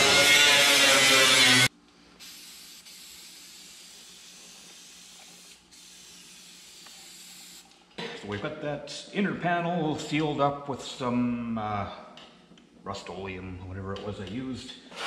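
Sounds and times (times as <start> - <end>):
grinder on steel: 0.0 - 1.7
aerosol spray can hissing: 2.2 - 7.7.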